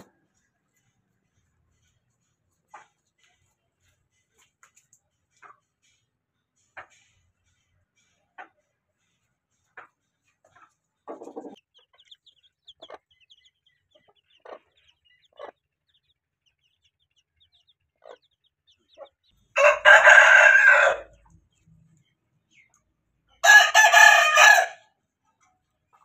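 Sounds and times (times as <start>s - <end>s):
chickens clucking: 0.0s - 23.4s, 25.2s - 26.0s
chicks peeping: 0.0s - 23.4s, 25.4s - 26.0s
rooster crowing: 19.6s - 21.1s, 23.4s - 24.8s.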